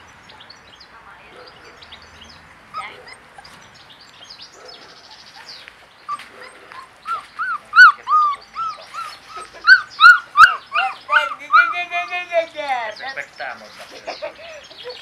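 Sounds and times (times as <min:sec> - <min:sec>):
puppies whimpering: 0:02.7 - 0:03.7, 0:04.6 - 0:12.7.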